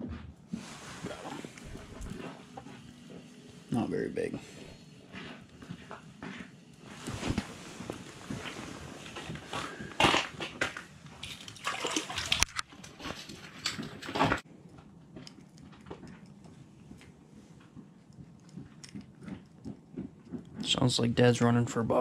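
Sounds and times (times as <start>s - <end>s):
handling clicks and rustles: 0.6s - 21.0s
fish splashing in water: 11.2s - 12.6s.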